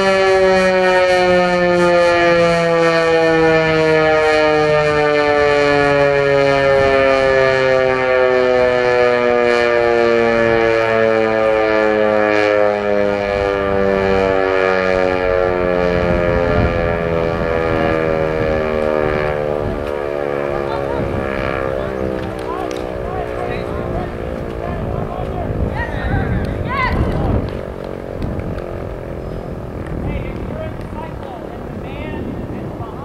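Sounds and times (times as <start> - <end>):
warning siren winding down: 0.0 - 32.8.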